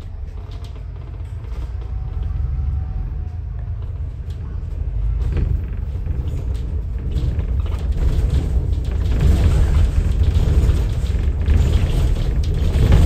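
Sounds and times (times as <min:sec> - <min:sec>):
bus engine and road rumble: 0:00.0 - 0:13.0
light rattles: 0:03.8 - 0:13.0.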